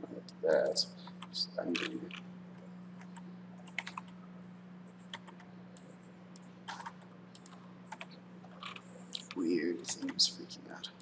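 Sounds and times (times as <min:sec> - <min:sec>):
steady low hum: 0:00.0 - 0:11.0
keyboard keys clicking: 0:03.1 - 0:04.1.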